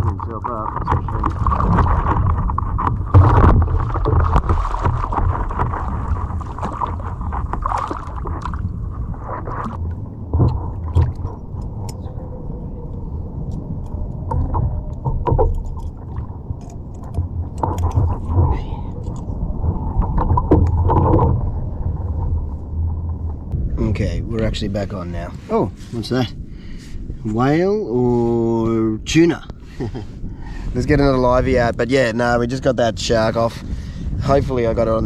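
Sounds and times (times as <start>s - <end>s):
water splashing against kayak hull: 0.0s - 23.7s
shark thrashing splash: 1.2s - 8.8s.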